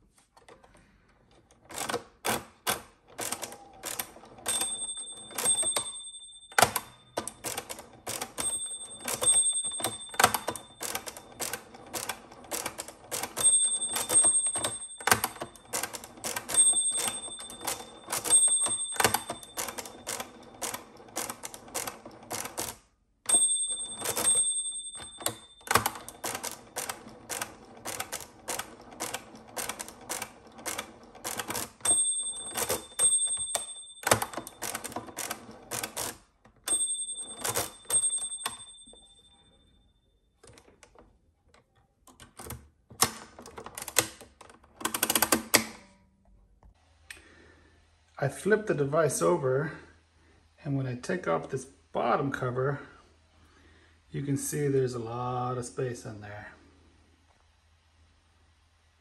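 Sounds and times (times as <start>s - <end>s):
mechanical calculator ratcheting clicks: 1.5s - 39.0s, 42.1s - 45.6s
calculator bell ringing: 1.7s - 40.9s.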